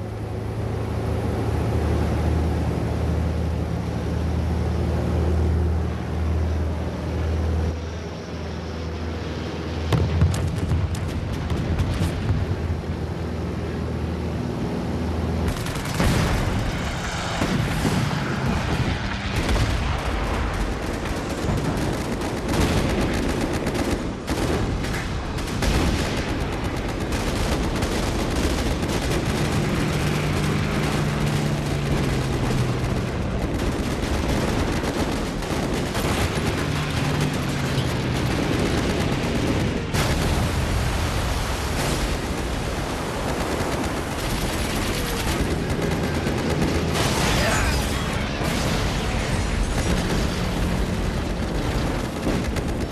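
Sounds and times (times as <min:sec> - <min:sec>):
low steady drone: 0:00.0 - 0:52.9
rapid gunfire: 0:15.4 - 0:40.9, 0:41.6 - 0:52.9.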